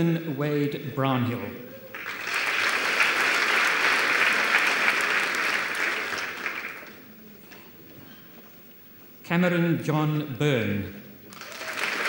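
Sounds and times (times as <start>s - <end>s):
audience applauding: 1.8s - 7.1s, 11.3s - 12.0s.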